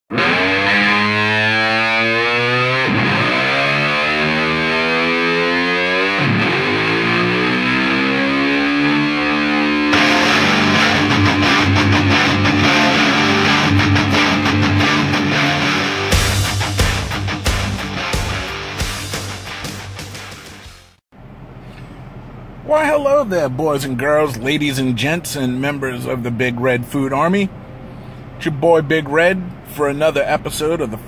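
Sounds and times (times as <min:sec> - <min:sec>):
distorted electric guitar sweeps: 0:00.1 - 0:20.9
heavy rock drum beat: 0:09.9 - 0:20.9.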